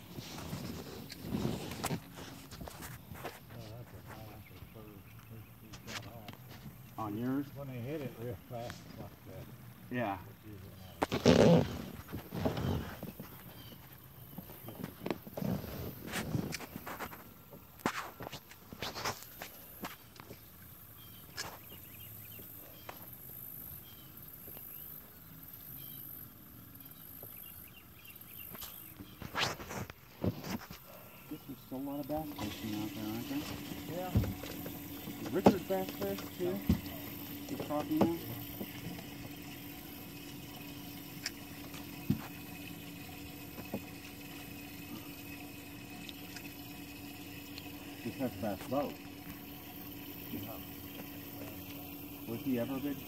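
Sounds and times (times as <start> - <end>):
water lapping: 0.0 - 5.6, 6.5 - 53.0
boat motor humming: 0.0 - 53.0
light knocks against boat: 33.5 - 37.0.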